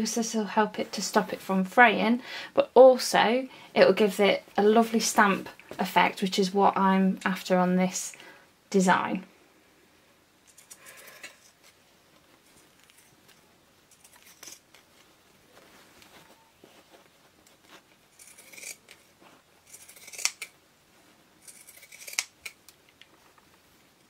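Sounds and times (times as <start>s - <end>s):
shears snipping fabric: 17.5s - 20.5s, 21.4s - 22.6s.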